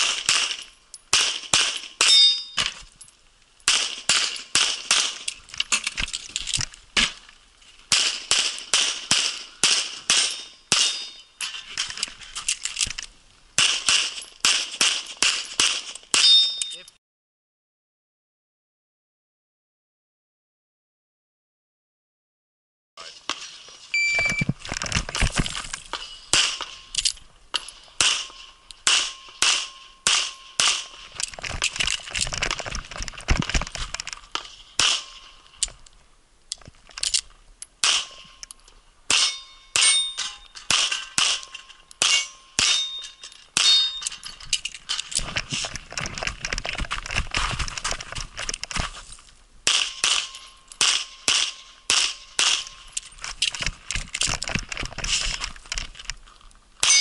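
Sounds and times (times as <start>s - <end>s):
steel targets clanging: 0.1s - 2.8s, 7.9s - 12.0s, 15.1s - 16.9s, 39.1s - 45.1s, 56.8s - 57.0s
brief beep: 23.9s - 24.5s.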